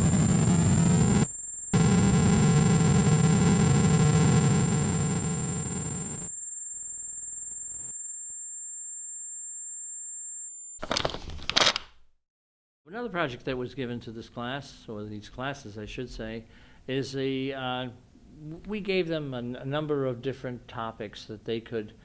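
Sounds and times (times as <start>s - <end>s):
loud rumbling drone: 0.0s - 1.2s, 1.8s - 6.2s
steady high-pitched tones: 0.0s - 10.5s.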